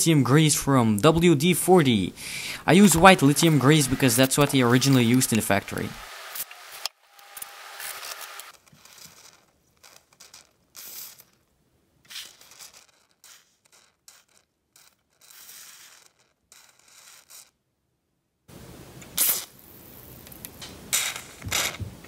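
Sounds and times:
aerosol can spraying: 2.6 - 8.5.

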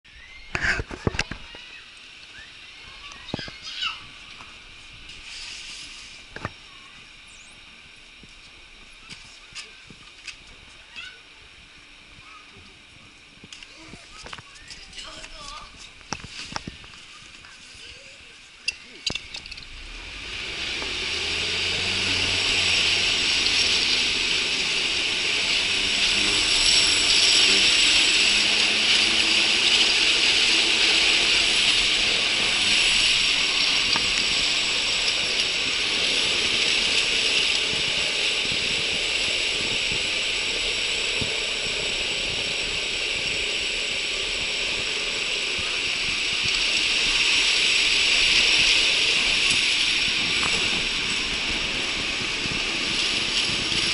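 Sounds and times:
roller slide rattling and whirring: 12.8 - 53.9.

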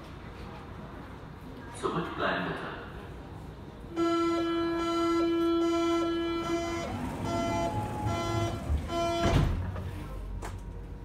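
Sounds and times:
long steady electronic tone: 3.9 - 9.4
short beeps: 4.0 - 9.4
train doors shutting thud: 4.2 - 10.8.

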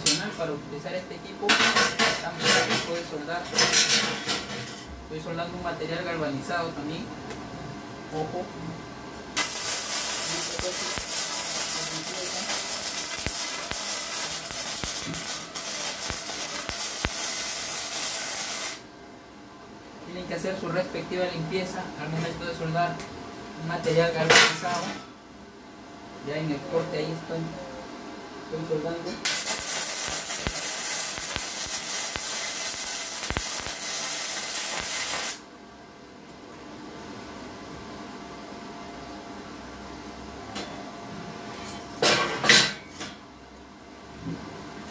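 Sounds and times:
welding arc hissing and crackling: 9.4 - 18.9, 29.2 - 35.5.

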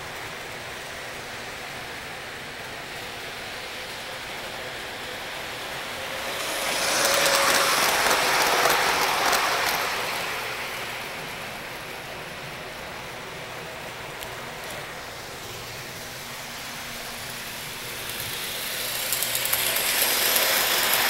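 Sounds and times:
model train wheels rolling: 0.0 - 21.0.

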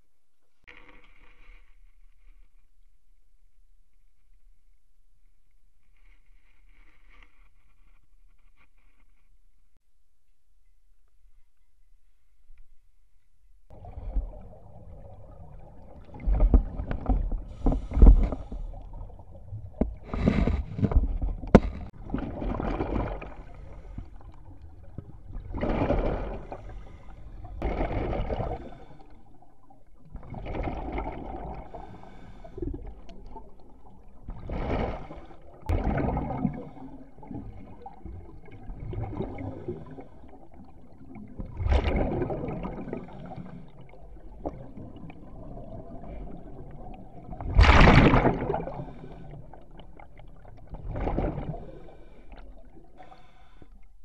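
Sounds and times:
underwater bubbles gurgling: 13.7 - 54.0.

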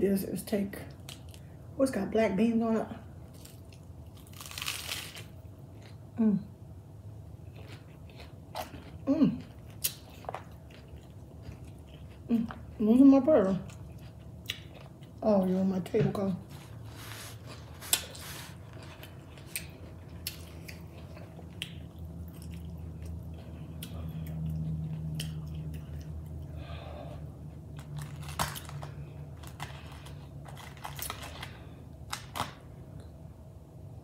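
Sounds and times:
low steady hum: 0.0 - 34.0
chewing crisp lettuce: 3.3 - 6.1, 7.3 - 15.4, 16.5 - 26.5, 27.4 - 32.6.

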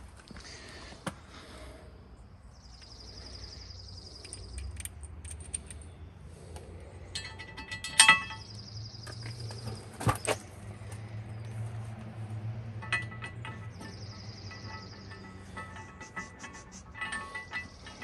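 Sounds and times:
small metal parts clinking: 4.0 - 6.0, 7.0 - 9.7, 12.8 - 18.0.

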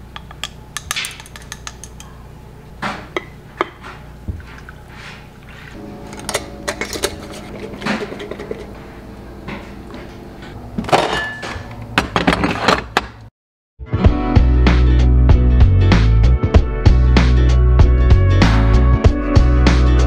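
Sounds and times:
loud background music: 13.9 - 20.0.

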